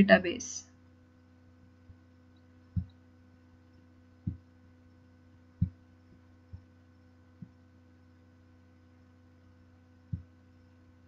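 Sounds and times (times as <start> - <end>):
steady electrical hum: 0.0 - 11.0
dull low thumps: 4.2 - 4.5.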